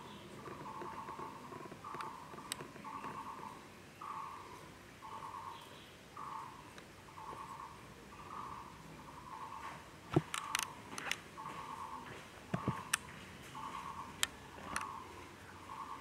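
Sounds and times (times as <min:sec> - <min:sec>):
sharp clicks: 0:10.1 - 0:11.2, 0:14.2 - 0:14.9.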